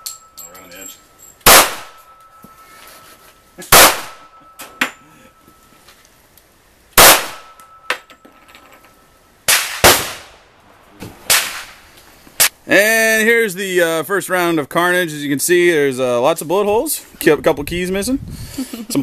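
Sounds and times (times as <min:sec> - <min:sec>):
loud pistol shots: 0:01.4 - 0:02.0, 0:03.7 - 0:04.3, 0:07.0 - 0:07.6, 0:09.5 - 0:10.4.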